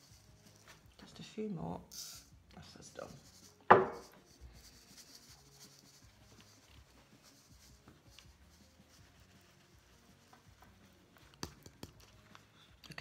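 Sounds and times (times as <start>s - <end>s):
sharp knock: 3.7s - 4.1s.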